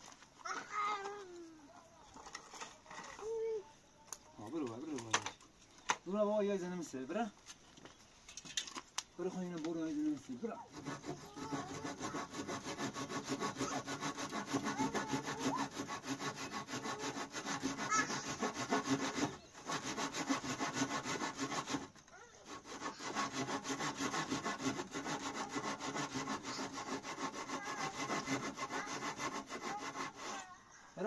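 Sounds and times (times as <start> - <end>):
saw cutting wood: 10.0 - 30.5.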